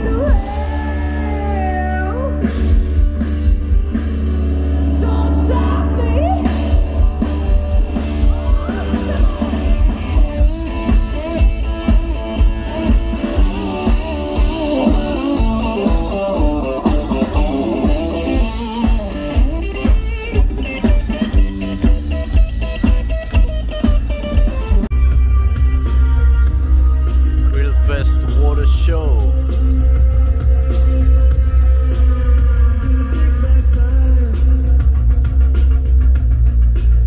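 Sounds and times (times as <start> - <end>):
person singing: 0.0 - 2.6
steady drum beat: 0.0 - 5.0, 6.2 - 37.0
live rock band playing: 0.0 - 37.0.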